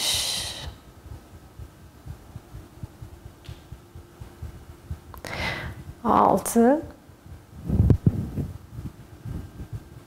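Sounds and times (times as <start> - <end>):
woman breathing out hard: 5.2 - 5.8.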